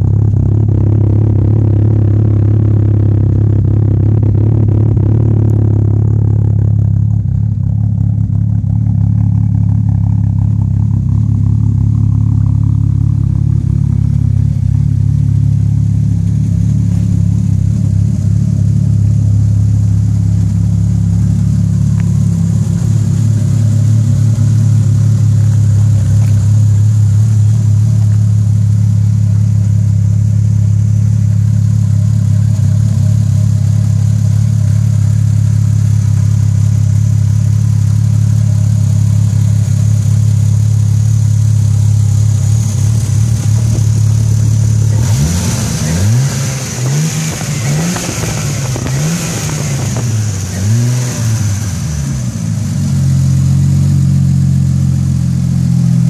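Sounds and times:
car engine idling: 0.0s - 56.0s.

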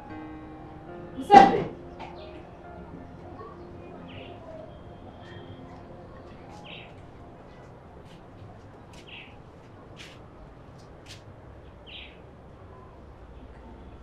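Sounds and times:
bird chirping: 3.3s - 7.6s, 11.8s - 12.2s.

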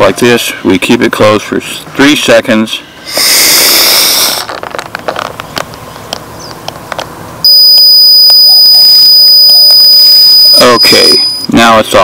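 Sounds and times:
high-pitched buzzer beep: 7.5s - 11.5s.

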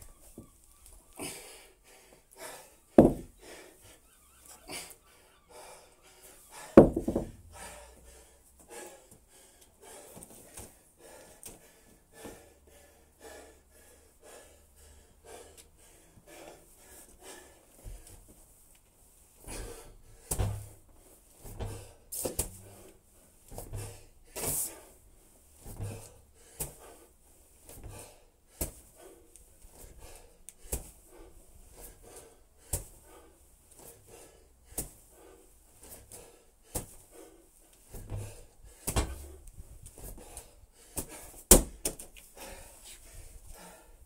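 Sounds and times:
medicine ball thudding against wall: 3.0s - 3.3s, 6.8s - 7.5s, 20.2s - 20.8s, 23.6s - 24.0s, 38.0s - 39.4s, 41.0s - 42.0s.

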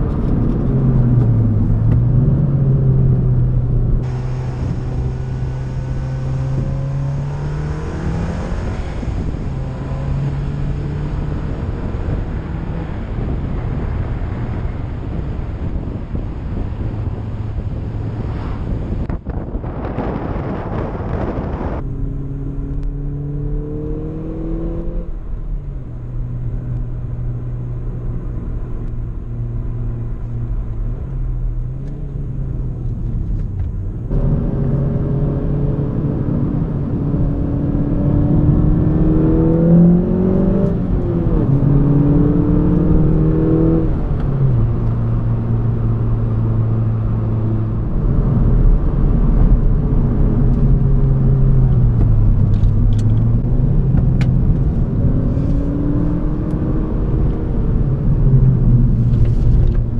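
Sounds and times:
wind buffeting microphone: 0.0s - 25.0s
car engine accelerating: 0.0s - 59.9s.

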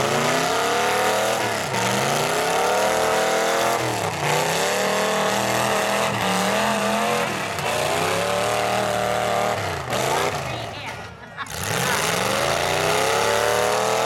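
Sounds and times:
car engines revving hard: 0.0s - 14.0s.

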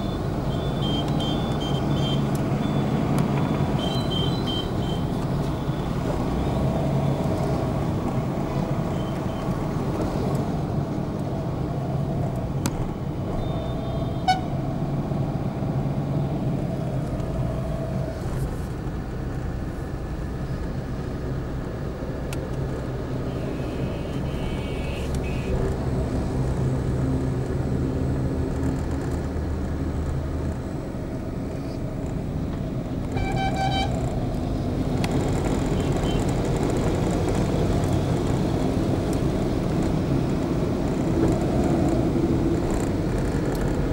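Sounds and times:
car engine and tyre hum: 0.0s - 43.9s
vehicle horn honking: 13.5s - 14.5s, 23.3s - 25.5s, 33.2s - 33.9s.

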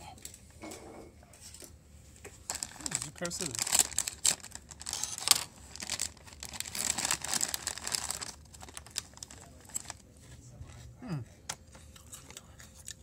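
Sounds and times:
plastic bag crackling: 2.4s - 10.0s.

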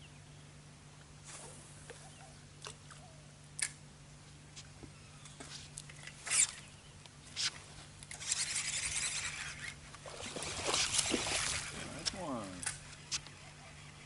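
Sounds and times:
fishing reel whirring and rattling: 7.3s - 14.0s.

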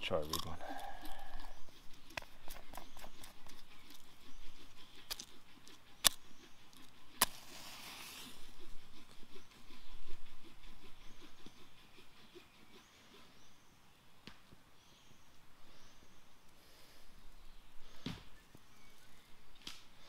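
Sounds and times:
match striking: 7.2s - 8.4s.

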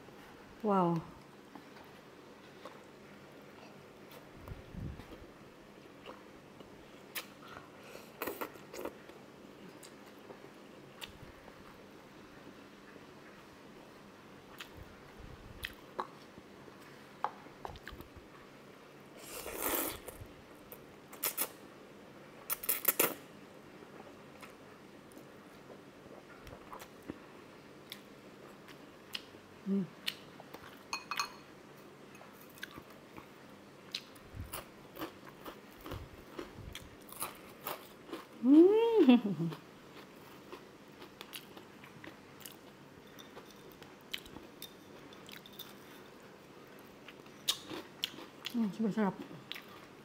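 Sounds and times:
person chewing: 3.6s - 10.4s, 15.5s - 16.3s, 19.2s - 20.2s, 21.1s - 21.6s, 22.5s - 23.2s, 24.4s - 27.2s, 27.8s - 29.4s, 32.2s - 33.3s, 33.9s - 38.4s, 39.5s - 46.1s, 46.8s - 48.6s, 49.4s - 50.0s.

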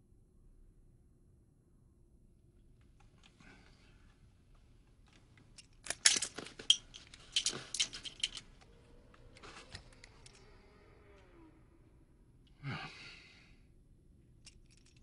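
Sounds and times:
metal cartridges clinking: 5.6s - 8.5s, 14.4s - 15.0s.

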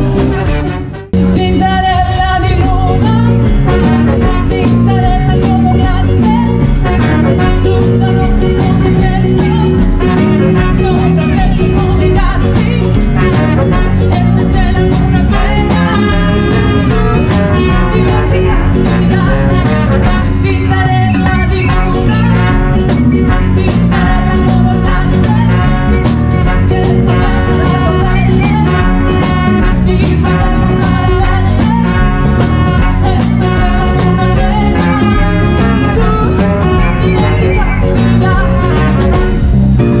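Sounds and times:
drums: 0.0s - 40.0s
electric guitar: 0.0s - 40.0s
saxophone: 0.0s - 40.0s
swing band playing: 0.0s - 40.0s
trumpet: 0.0s - 40.0s
woman singing: 1.2s - 39.4s.

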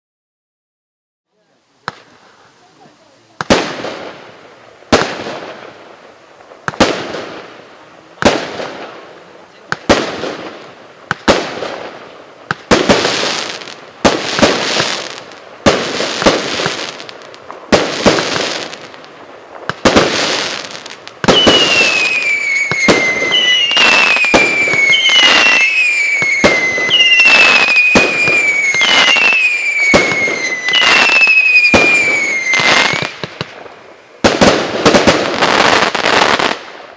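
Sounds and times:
firework shots and bursts: 1.8s - 36.9s
whistling firework tracers: 9.7s - 36.9s.

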